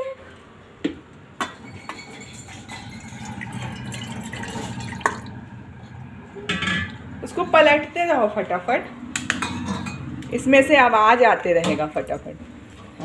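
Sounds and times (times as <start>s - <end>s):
steel cookware clinking: 1.4s - 5.0s, 9.3s - 10.1s
liquid pouring into bowl: 2.2s - 5.5s.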